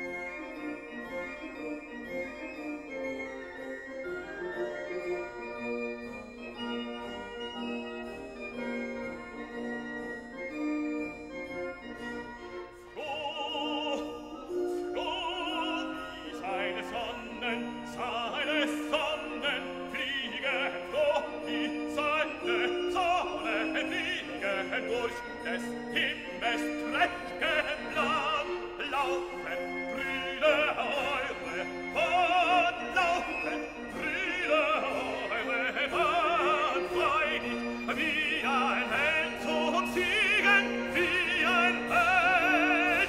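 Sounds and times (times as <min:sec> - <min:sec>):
operatic singing voice: 0:12.9 - 0:43.0.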